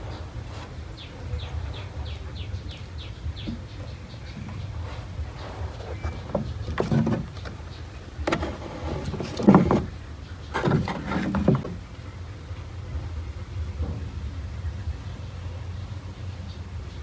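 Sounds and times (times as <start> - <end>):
scraping rustles: 0.0 - 2.2, 3.4 - 12.0
steady low rumble: 0.0 - 6.7, 11.8 - 17.0.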